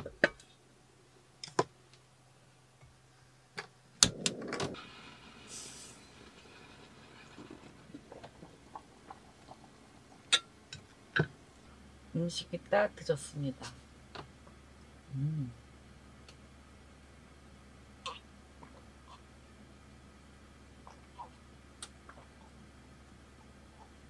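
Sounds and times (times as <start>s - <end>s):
brief hiss: 4.8s - 6.4s.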